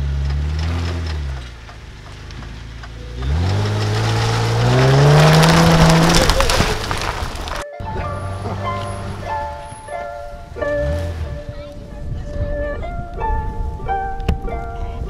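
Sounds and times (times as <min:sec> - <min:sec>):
tyres splashing through mud: 0:00.0 - 0:11.5
car engine revving: 0:00.0 - 0:12.1.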